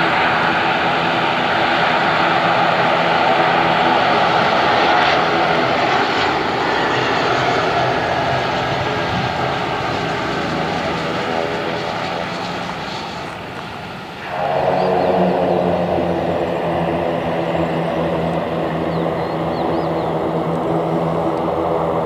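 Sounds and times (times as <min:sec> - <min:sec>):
jet landing: 0:00.0 - 0:22.0.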